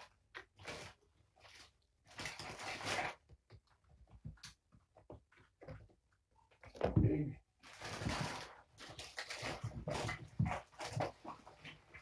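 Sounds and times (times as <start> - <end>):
medicine bottle rustling: 7.6 - 12.0.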